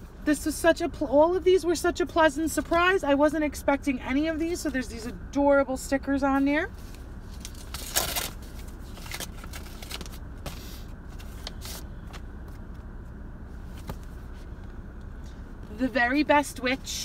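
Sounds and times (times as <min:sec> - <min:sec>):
paper rustle: 0:06.8 - 0:12.2
card crinkling and tapping: 0:07.4 - 0:10.6.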